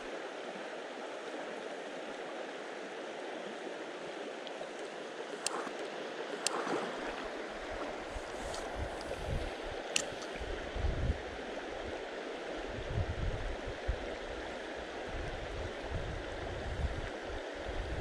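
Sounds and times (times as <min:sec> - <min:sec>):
river water rushing over stones: 0:00.0 - 0:10.5.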